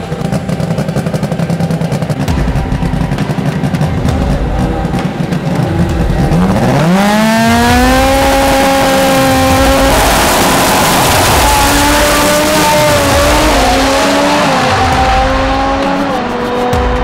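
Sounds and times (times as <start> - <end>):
race car engine revving: 0.0 - 17.0.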